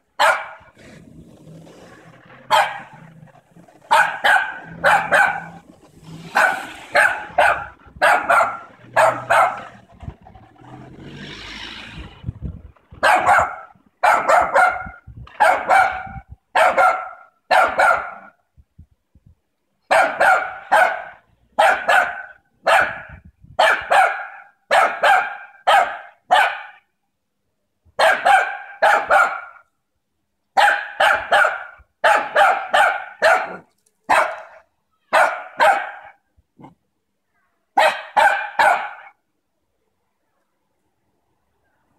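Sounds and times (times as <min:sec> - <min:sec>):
small dog barking: 0:00.2 - 0:00.7, 0:02.5 - 0:03.1, 0:03.8 - 0:05.7, 0:06.3 - 0:09.9, 0:13.0 - 0:18.3, 0:19.9 - 0:26.8, 0:28.0 - 0:29.6, 0:30.6 - 0:36.8, 0:37.8 - 0:39.2.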